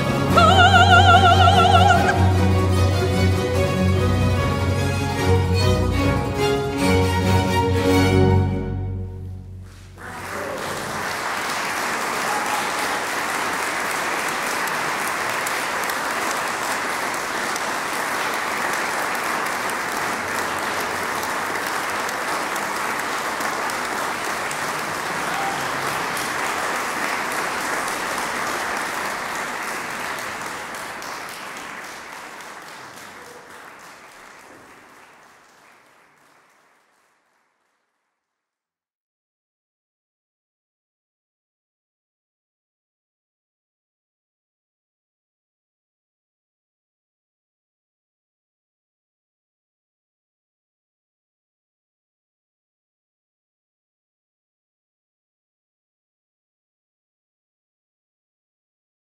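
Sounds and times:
audience applauding: 0:00.0 - 0:03.4, 0:09.7 - 0:38.2
orchestra final chord: 0:00.0 - 0:04.1.

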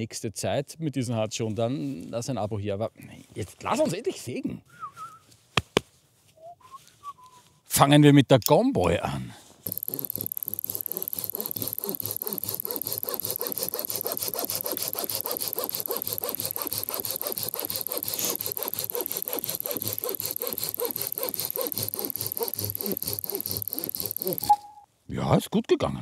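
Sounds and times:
hand saw cutting log: 0:09.6 - 0:24.6
stopwatch ticking: 0:09.6 - 0:24.7.

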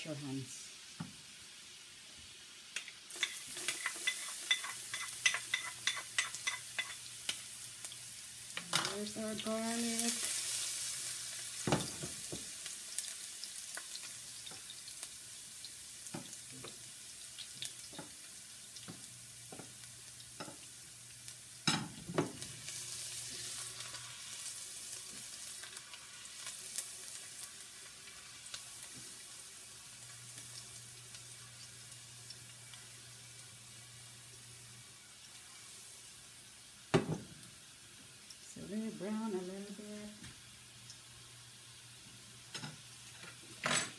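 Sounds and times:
garlic sizzling in hot oil: 0:00.0 - 0:43.9
utensil clicking against pans: 0:02.8 - 0:07.4.

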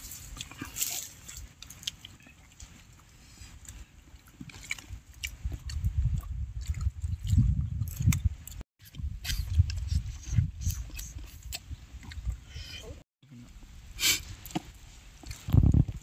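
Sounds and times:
people chewing: 0:00.0 - 0:13.0, 0:15.2 - 0:15.7.

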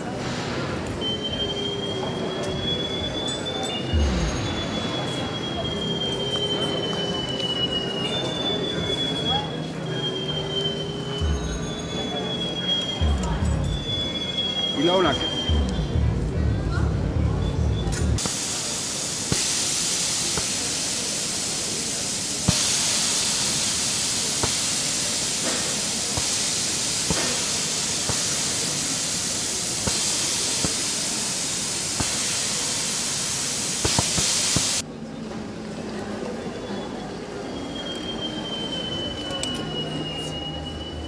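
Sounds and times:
compressed air hissing: 0:18.2 - 0:34.8.

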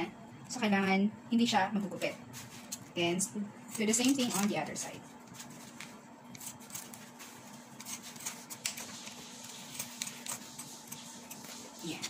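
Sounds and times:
plastic crinkling: 0:03.7 - 0:12.0.

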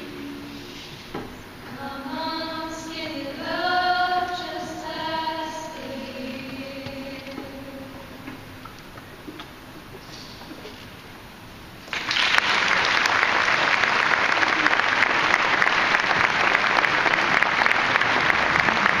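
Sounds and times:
audience applause: 0:11.9 - 0:19.0.

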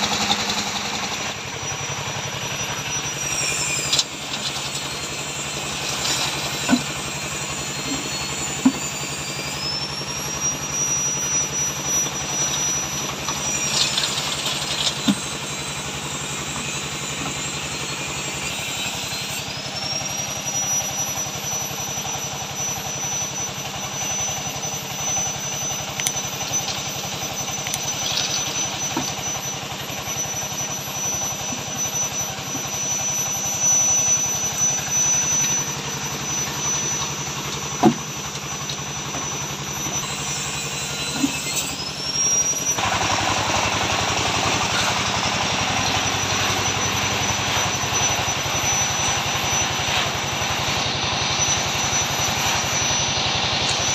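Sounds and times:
cement mixer engine running: 0:00.0 - 0:53.9
knocks and scrapes of concrete: 0:12.4 - 0:15.5.

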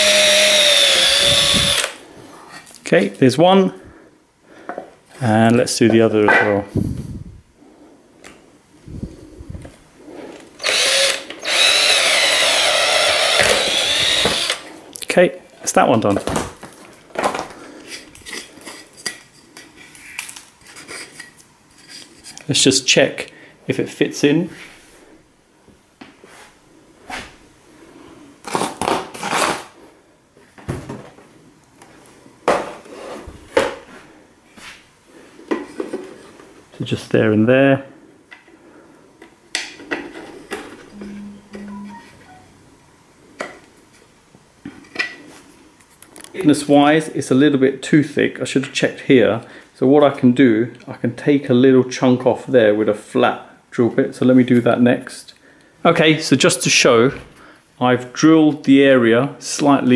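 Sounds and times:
electric drill boring into wood: 0:00.0 - 0:02.0, 0:10.6 - 0:14.7.

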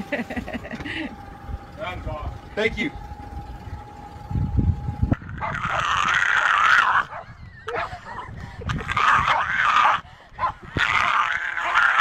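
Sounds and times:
low rumble: 0:00.0 - 0:12.0
dog raspy cries: 0:05.2 - 0:12.0.

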